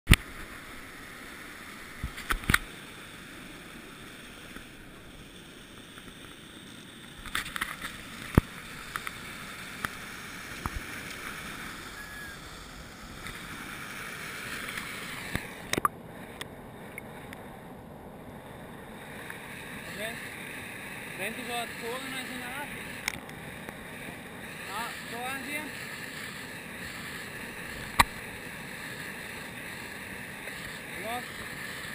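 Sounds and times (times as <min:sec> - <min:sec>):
muffled underwater water: 0:00.1 - 0:31.9
river water rushing over rapids: 0:07.1 - 0:16.4, 0:18.9 - 0:31.9.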